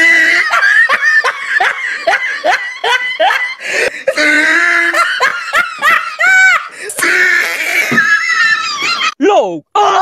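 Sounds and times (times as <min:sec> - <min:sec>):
person laughing hard: 0:00.0 - 0:09.2.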